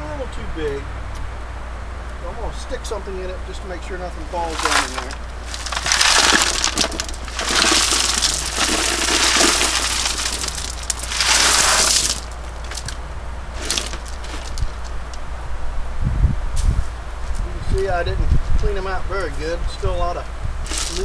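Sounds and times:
pebbles clattering onto gravel: 4.4s - 15.2s, 20.6s - 21.0s
pebbles rattling as spread by hand: 4.4s - 15.2s, 20.6s - 21.0s.

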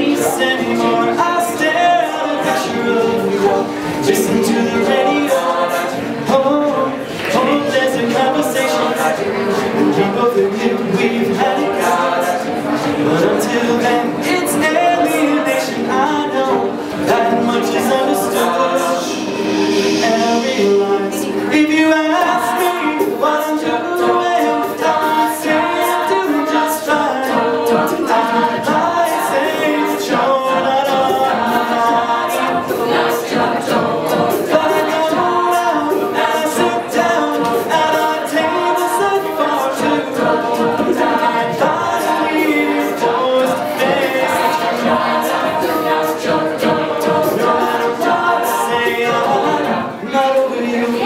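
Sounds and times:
a cappella group singing: 0.0s - 51.0s.

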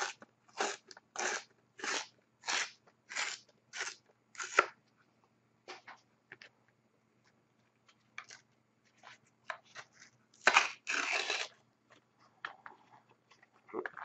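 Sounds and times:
trading cards being torn: 10.4s - 11.5s.

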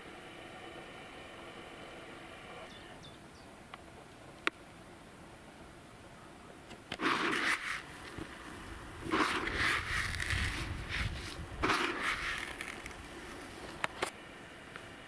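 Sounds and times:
dry groundbait rustling in bucket: 7.0s - 13.8s.

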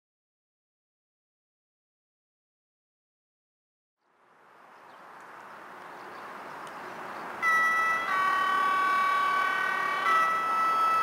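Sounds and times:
approaching train noise: 4.2s - 11.0s
train horn blast: 7.5s - 11.0s.

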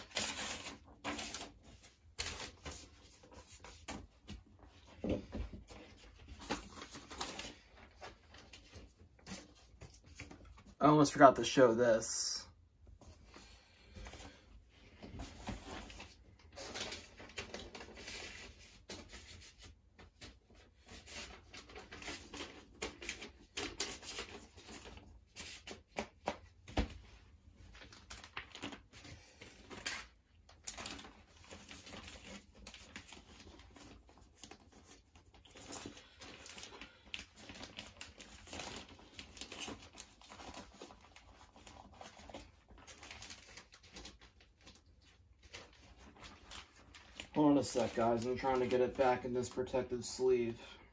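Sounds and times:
record sleeve rustling: 13.0s - 50.2s.

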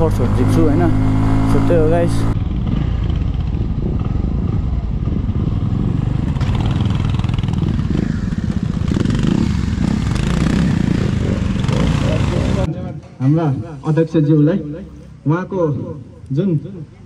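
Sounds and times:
motorcycle engine running: 0.0s - 12.7s.

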